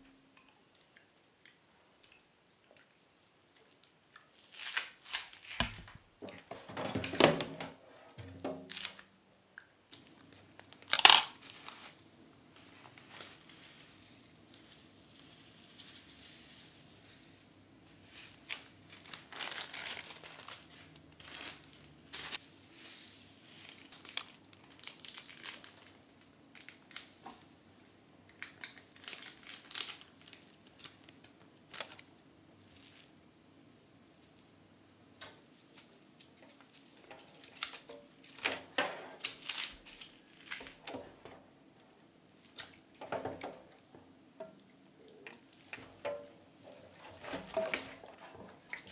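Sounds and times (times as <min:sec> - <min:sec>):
plastic bags crinkling: 0:08.6 - 0:09.1, 0:10.0 - 0:16.4, 0:18.1 - 0:22.4, 0:23.5 - 0:27.2, 0:28.4 - 0:32.1, 0:36.3 - 0:41.3, 0:45.1 - 0:48.9.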